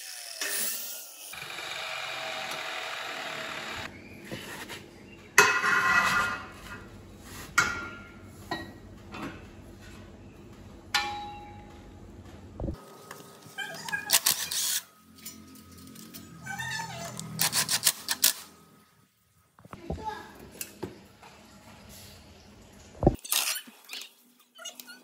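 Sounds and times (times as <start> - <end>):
abrasive cut-off saw running: 0.0 - 3.9.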